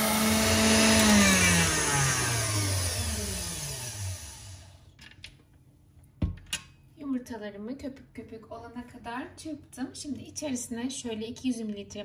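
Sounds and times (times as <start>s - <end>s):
stand mixer whisking: 0.0s - 4.7s
motor whine running down: 0.0s - 4.8s.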